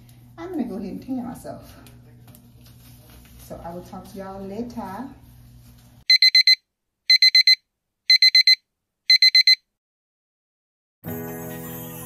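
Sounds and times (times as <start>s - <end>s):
phone alarm beeps: 6.1s - 9.6s.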